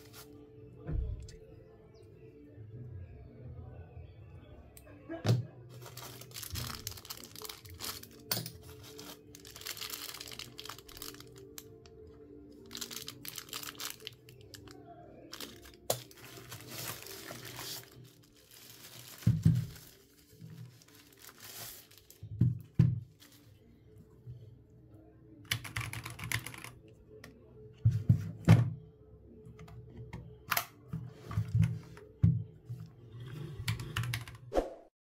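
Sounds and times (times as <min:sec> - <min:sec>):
plastic bags crinkling and tearing: 0:05.7 - 0:11.8, 0:12.6 - 0:22.3.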